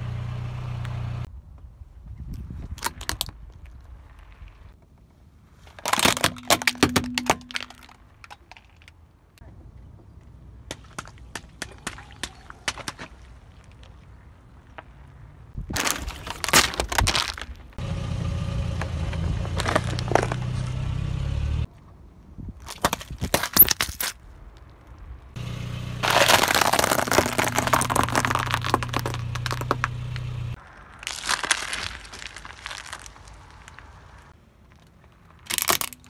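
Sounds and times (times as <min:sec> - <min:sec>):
low car engine hum: 0:00.0 - 0:01.3, 0:17.3 - 0:21.7, 0:25.2 - 0:31.0
tyre crushing small objects: 0:05.6 - 0:09.0, 0:15.6 - 0:17.8, 0:19.4 - 0:20.6, 0:22.6 - 0:24.9, 0:26.0 - 0:36.0.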